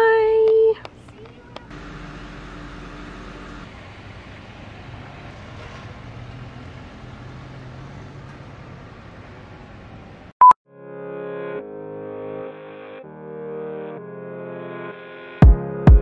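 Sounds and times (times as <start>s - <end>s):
car engine humming: 0.0s - 10.3s.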